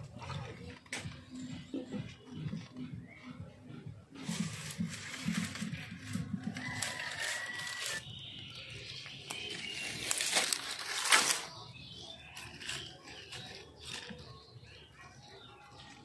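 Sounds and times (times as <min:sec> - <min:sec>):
twigs and straw rustling: 0:04.2 - 0:16.0
sharp crackles: 0:04.6 - 0:08.0, 0:09.0 - 0:11.7.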